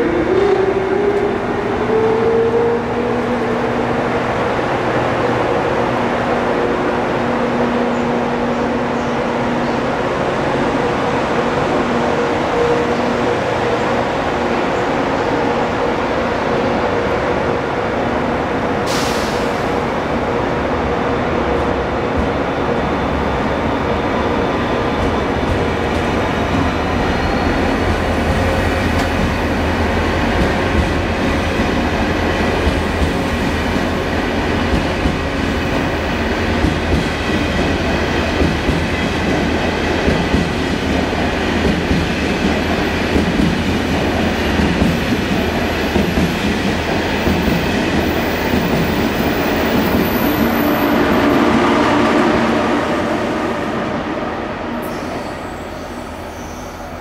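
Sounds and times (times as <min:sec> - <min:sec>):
train humming: 0:00.0 - 0:57.0
train wheel noise: 0:18.7 - 0:57.0.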